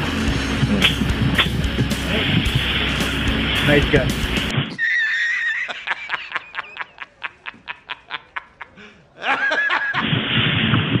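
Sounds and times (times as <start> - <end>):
man laughing hard: 4.8 - 10.0.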